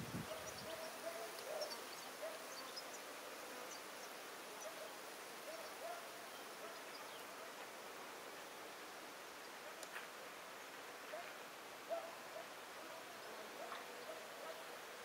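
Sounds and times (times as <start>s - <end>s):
bird calls: 0.3s - 3.0s.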